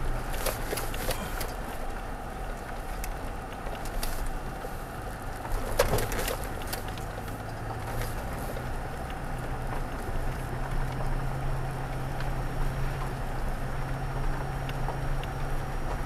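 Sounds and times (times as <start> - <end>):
low engine hum: 0.0 - 16.0
tyre and road noise: 0.0 - 16.0.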